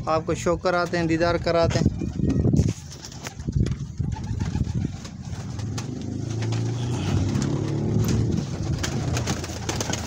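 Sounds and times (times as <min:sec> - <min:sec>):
pigeons cooing: 0:04.0 - 0:10.0.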